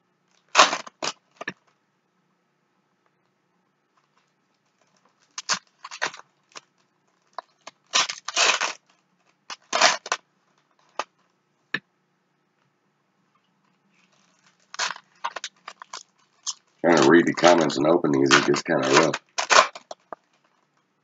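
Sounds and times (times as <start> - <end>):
foil wrapper tearing and crinkling: 0.3 - 1.5, 5.0 - 10.2, 14.0 - 20.5.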